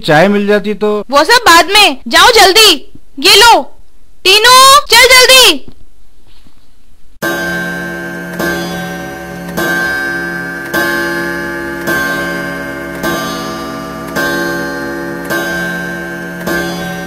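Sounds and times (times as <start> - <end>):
loud ringing clock tick: 7.2 - 17.0
steady sustained tone: 7.2 - 17.0.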